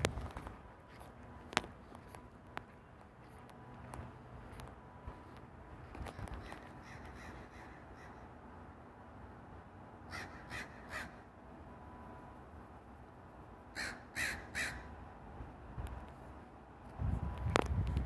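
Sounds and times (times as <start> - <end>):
crow cawing: 6.4 - 8.3, 10.1 - 11.3, 13.7 - 14.9.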